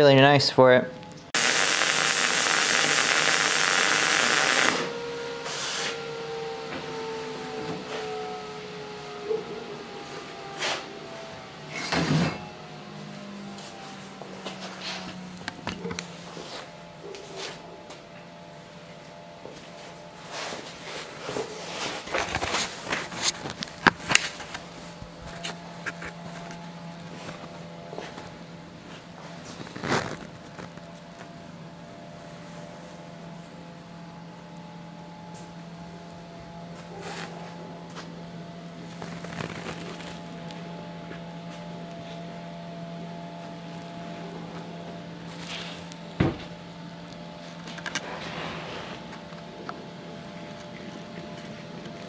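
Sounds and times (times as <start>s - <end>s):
steady low hum: 0.0s - 52.0s
welding arc crackling sizzle: 1.1s - 6.0s, 38.8s - 40.8s.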